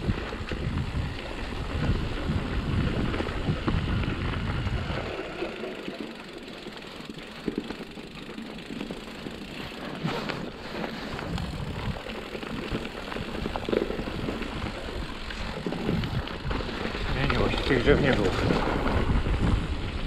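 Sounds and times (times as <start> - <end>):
wind noise on microphone: 0.0 - 5.6, 10.0 - 20.0
bike clattering and rattling: 0.0 - 20.0
bike tyres rolling over dirt and stones: 0.0 - 20.0.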